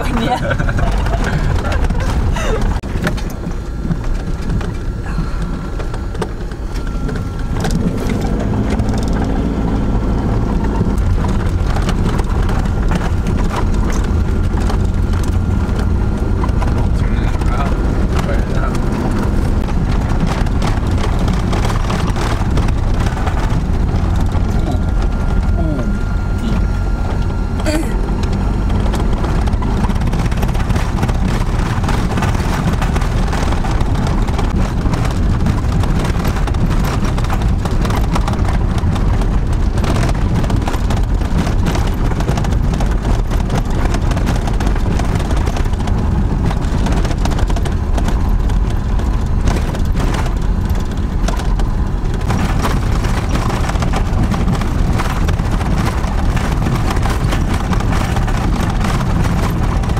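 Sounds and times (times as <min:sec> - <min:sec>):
engine and tyres rumbling: 0:00.0 - 0:59.9
vehicle body rattling: 0:00.0 - 0:59.9.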